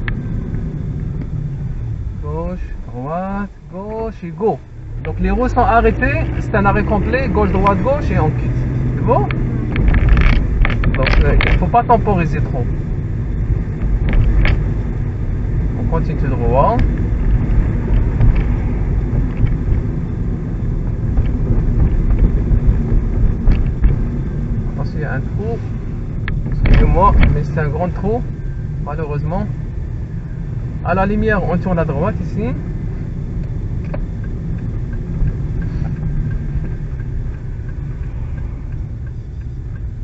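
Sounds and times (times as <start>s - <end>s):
turn signal ticking: 0.0s - 2.1s, 3.5s - 40.0s
car interior road noise: 0.0s - 40.0s
engine and tyre rumble: 0.0s - 40.0s
faint clicks: 33.4s - 40.0s.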